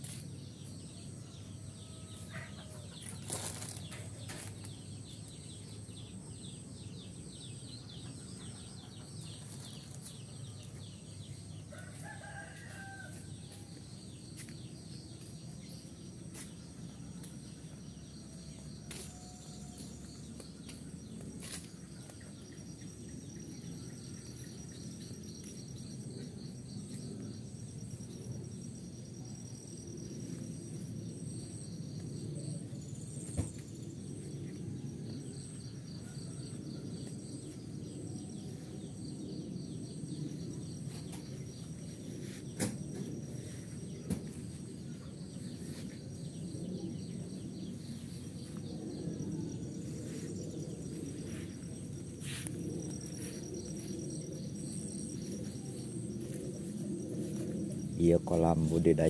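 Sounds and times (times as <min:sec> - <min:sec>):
high-pitched insect drone: 0:00.0 - 0:59.0
rooster crowing: 0:11.7 - 0:13.5.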